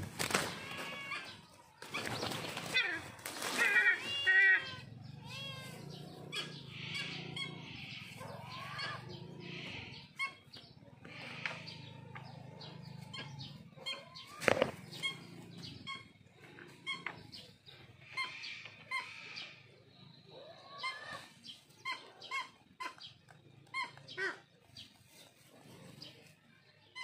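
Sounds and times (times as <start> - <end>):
eagles flapping and scuffling: 0.0 - 4.6, 14.2 - 15.2
eagle harsh calls: 0.0 - 24.5.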